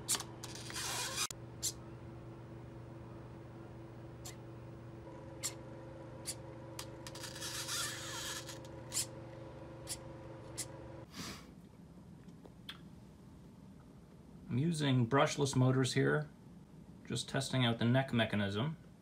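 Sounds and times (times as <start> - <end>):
electric motor hum: 4.9 - 11.1
motor whirring: 6.3 - 9.1.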